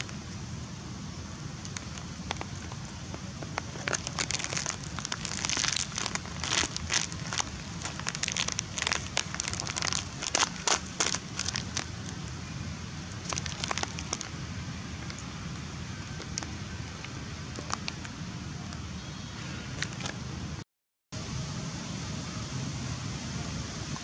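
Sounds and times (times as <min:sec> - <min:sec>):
steady low rumble: 0:00.0 - 0:18.9.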